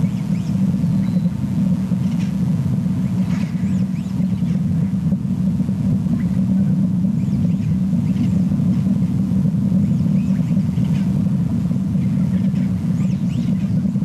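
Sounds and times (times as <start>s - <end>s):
faint small bird chirps: 0.0s - 1.3s
steady low rumble: 0.0s - 14.0s.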